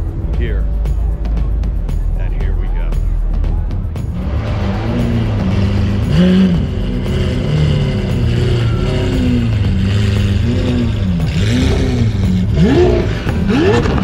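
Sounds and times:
car engine revving: 3.0 - 14.0.

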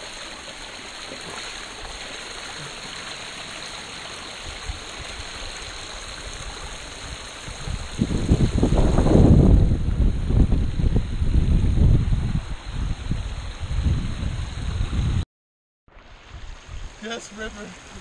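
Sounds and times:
creek water splashing over rocks: 0.0 - 9.0, 15.9 - 18.0
wind buffeting microphone: 6.4 - 15.2.

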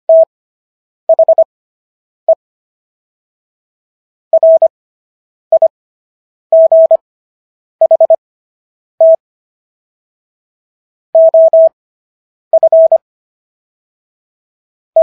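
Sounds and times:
morse code beeps: 1.1 - 1.5, 4.4 - 4.7, 6.6 - 7.0, 7.8 - 8.2, 9.0 - 9.2, 11.2 - 11.8, 12.6 - 13.0.

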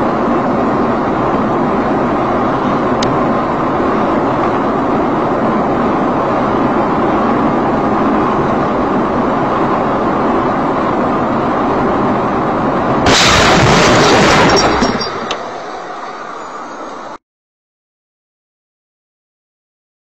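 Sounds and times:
road and engine noise: 0.0 - 17.2
rumble: 0.0 - 17.2
vehicle crash impact and crunch: 13.0 - 15.7.

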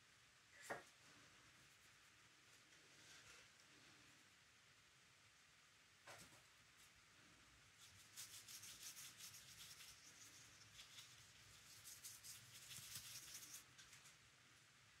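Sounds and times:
paintbrush strokes on paper: 7.8 - 14.0.

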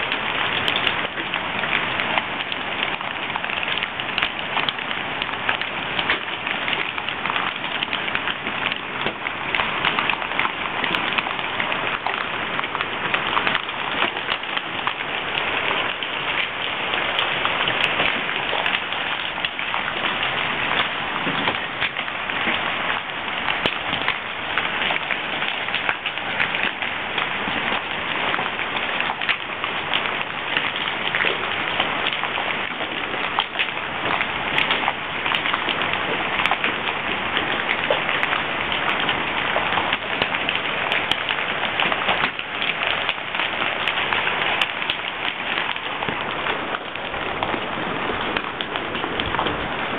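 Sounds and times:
hailstones pelting the ground: 0.0 - 49.9.

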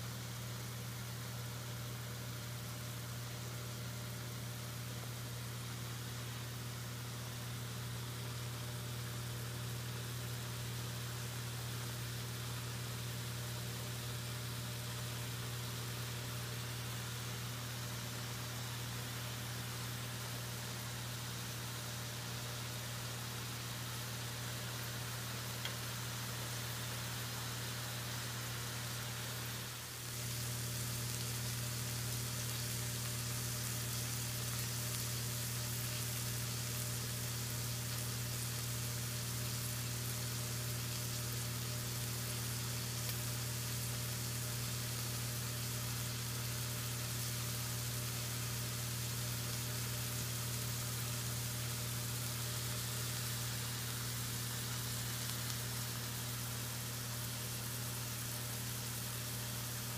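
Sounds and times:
steak sizzling in a skillet: 22.6 - 59.9
constant low hum: 30.0 - 56.4.

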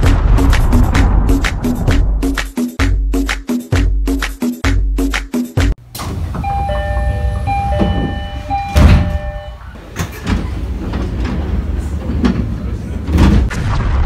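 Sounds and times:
loud thud: 0.0 - 2.2, 13.2 - 14.0
train low rumble: 5.9 - 13.2
electronic door chime: 6.3 - 9.7.

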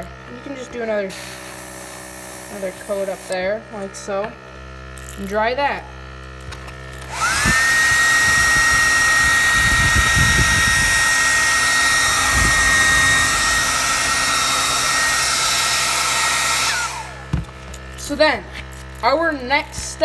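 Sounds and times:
hair dryer blowing: 0.0 - 3.4, 6.9 - 17.9
low rumbles: 7.1 - 18.2.

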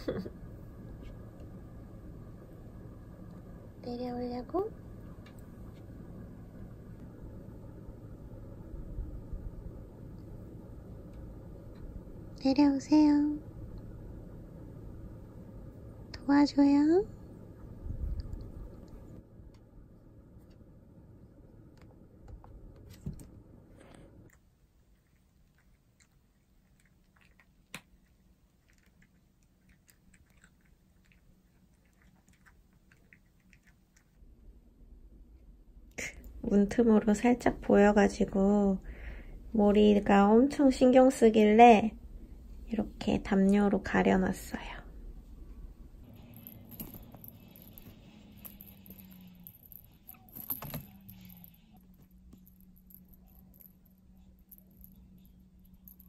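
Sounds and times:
low steady hum: 0.0 - 56.0
cat crunching dry kibble: 24.3 - 34.2
small bell jingling: 46.0 - 56.0.

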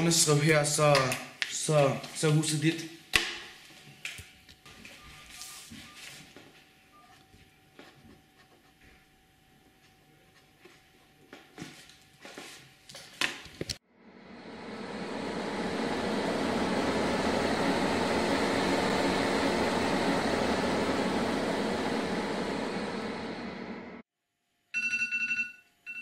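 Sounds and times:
steady rushing noise: 14.0 - 24.0.

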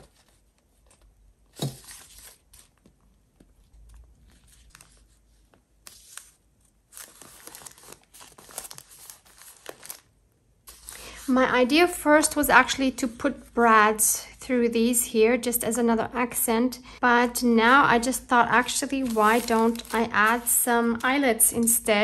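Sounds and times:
paper rustling and crinkling: 0.0 - 10.1, 10.7 - 11.6, 18.5 - 21.7.

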